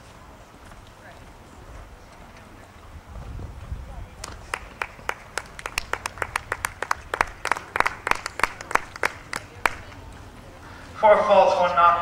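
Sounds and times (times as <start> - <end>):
small group applauding: 4.2 - 9.9.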